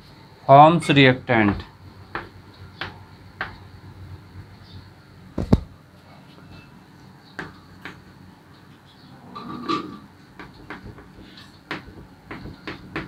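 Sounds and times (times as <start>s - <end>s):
chalk tapping and scraping blackboard: 10.4s - 13.0s.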